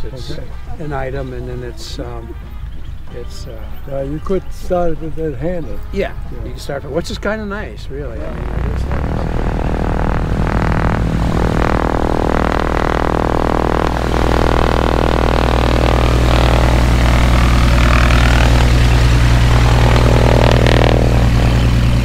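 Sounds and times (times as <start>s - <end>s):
light airplane engine and propeller: 7.8s - 22.0s.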